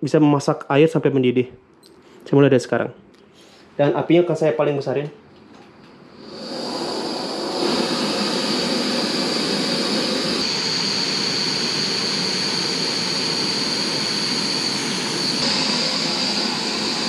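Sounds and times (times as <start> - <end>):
gas stove burner hissing: 6.0 - 17.0.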